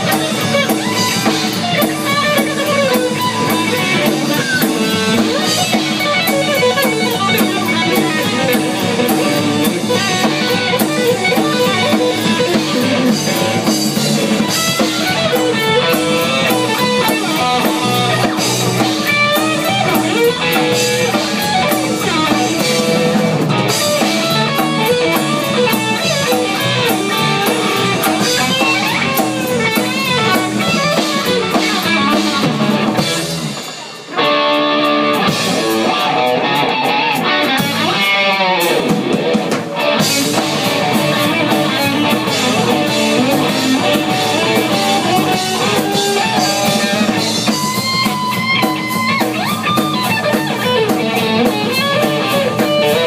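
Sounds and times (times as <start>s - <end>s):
drum kit: 0.0s - 53.0s
lead electric guitar: 0.0s - 53.0s.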